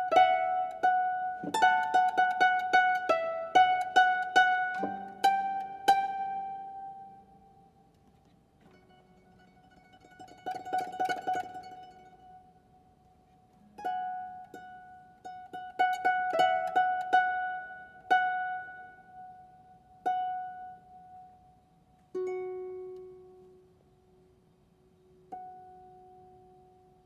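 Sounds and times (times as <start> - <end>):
harp plucked notes: 0.0 - 7.6.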